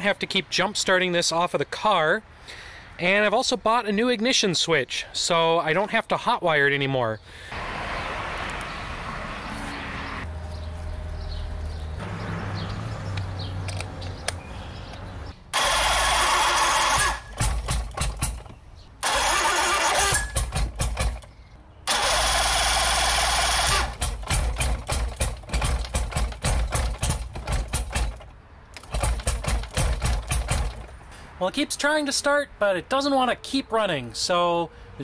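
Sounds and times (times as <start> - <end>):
electric starter cranking: 15.5 - 30.9.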